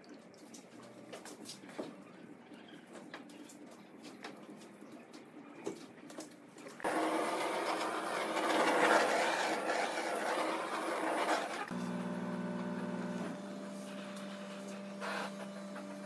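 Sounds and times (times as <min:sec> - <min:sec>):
power tool running: 0:06.8 - 0:16.0.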